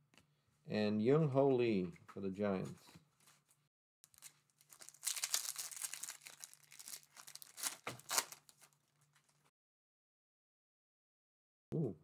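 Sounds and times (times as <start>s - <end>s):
foil wrapper crinkling and tearing: 4.0s - 9.5s.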